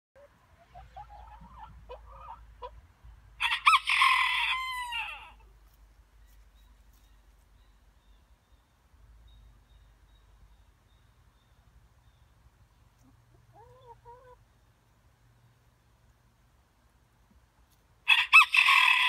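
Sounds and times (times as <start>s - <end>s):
chickens clucking: 0.2s - 2.8s, 12.7s - 15.0s
rooster crowing: 3.4s - 5.4s, 18.1s - 19.0s.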